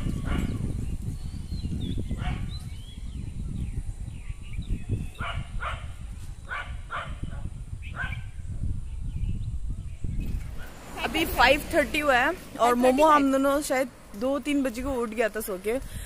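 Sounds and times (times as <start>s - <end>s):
birds chirping: 0.0s - 16.0s
dog barking: 0.2s - 0.6s, 2.2s - 2.5s, 5.2s - 5.9s, 6.5s - 8.2s.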